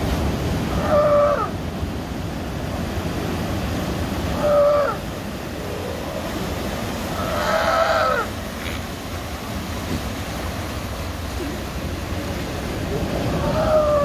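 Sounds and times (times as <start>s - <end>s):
steady surf: 0.0s - 14.0s
sea lion cries: 0.6s - 1.6s, 4.3s - 6.4s, 7.0s - 8.4s, 13.0s - 14.0s.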